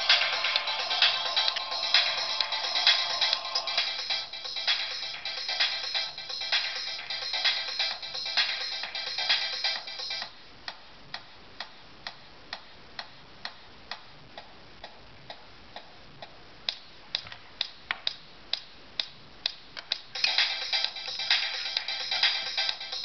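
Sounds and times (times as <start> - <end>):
music from small phone speaker: 0.0 - 10.3, 19.5 - 23.0.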